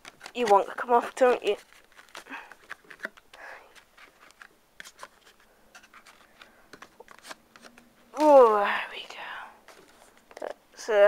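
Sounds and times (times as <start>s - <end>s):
fingers clicking and scraping on box: 0.0s - 8.4s.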